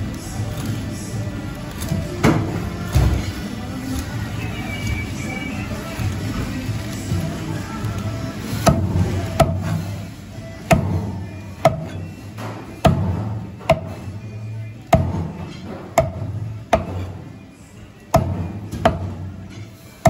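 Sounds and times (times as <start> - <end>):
background music: 0.0 - 20.0
mallet striking cleaver: 8.7 - 9.8, 10.7 - 12.0, 12.8 - 14.0, 14.9 - 17.1, 18.1 - 19.2.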